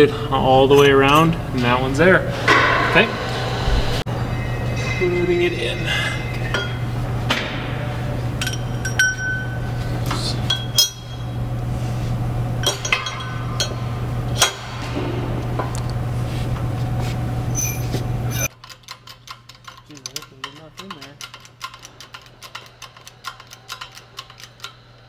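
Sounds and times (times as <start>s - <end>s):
steady low hum: 0.0s - 18.5s
steel parts clinking on metal: 8.4s - 11.4s, 12.6s - 14.7s, 17.5s - 24.8s.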